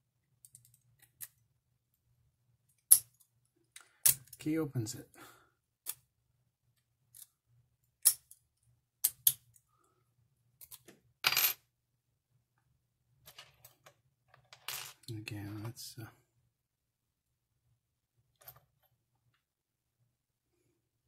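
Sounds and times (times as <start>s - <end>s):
metallic clicks of padlock and picks: 0.4s - 1.4s, 7.1s - 7.3s, 9.0s - 9.6s.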